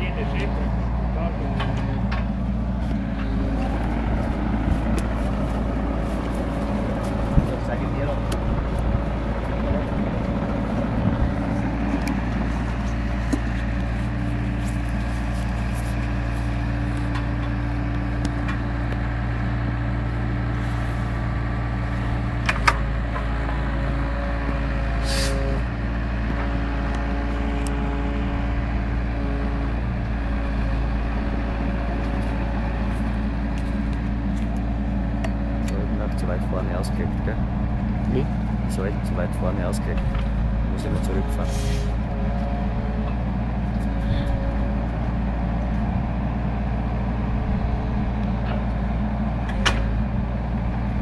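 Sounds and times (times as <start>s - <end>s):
diesel engine running: 0.0s - 51.0s
short hiss: 25.0s - 25.4s.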